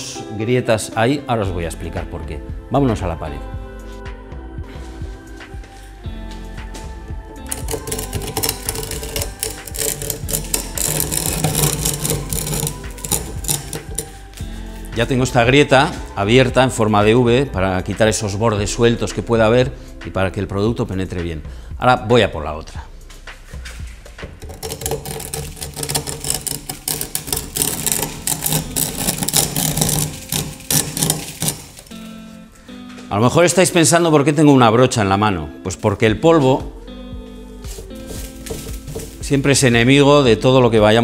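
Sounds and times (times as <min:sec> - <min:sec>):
metal scraper rasping on cement: 0:07.5 - 0:14.9, 0:24.4 - 0:32.4, 0:37.8 - 0:39.4.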